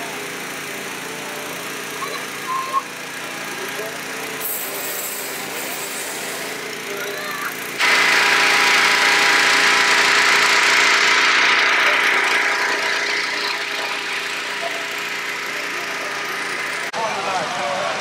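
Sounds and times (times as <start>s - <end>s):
propane burner roaring: 0.0s - 17.4s.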